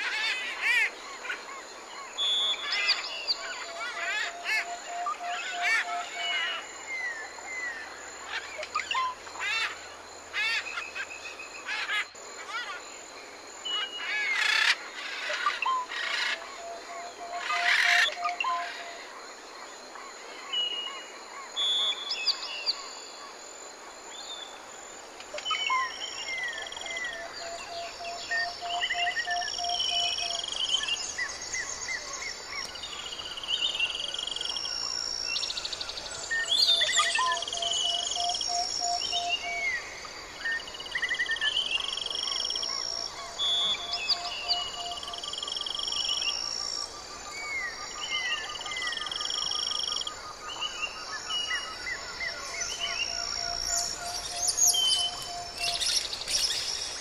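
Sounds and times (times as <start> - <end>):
birds calling: 25.4 - 57.0.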